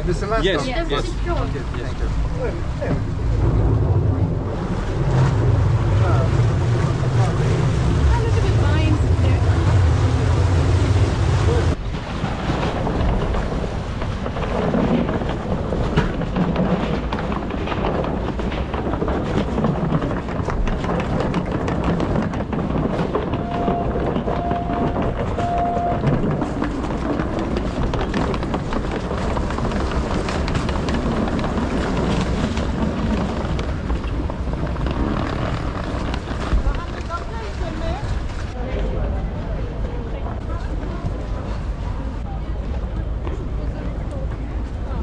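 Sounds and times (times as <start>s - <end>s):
boat engine rumbling: 0.0s - 45.0s
short beeps: 23.4s - 26.0s.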